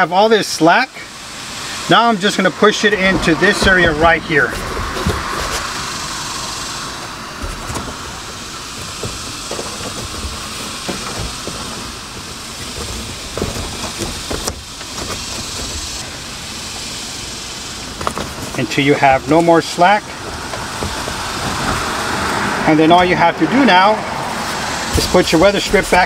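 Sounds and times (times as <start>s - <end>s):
steady high hiss: 0.0s - 26.0s
cable rustling and tapping: 3.0s - 5.8s, 7.4s - 16.0s, 20.2s - 21.9s, 24.9s - 26.0s.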